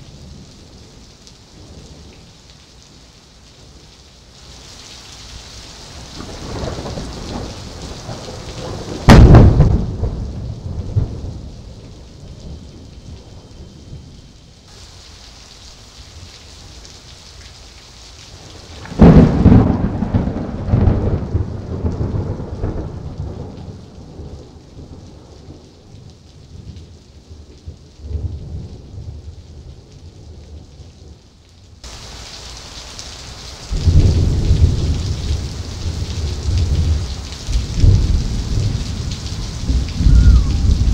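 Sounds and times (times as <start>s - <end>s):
heavy rain hissing: 0.0s - 30.0s, 31.8s - 40.9s
thunder crack: 6.2s - 11.4s, 18.8s - 23.6s, 37.6s - 40.9s
low thunder rumbling: 6.2s - 14.4s, 18.4s - 26.8s, 33.6s - 40.9s.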